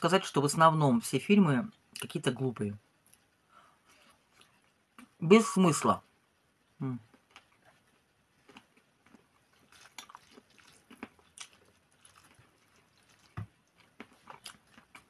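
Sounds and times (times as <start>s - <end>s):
chewing: 3.9s - 5.1s, 7.1s - 15.0s.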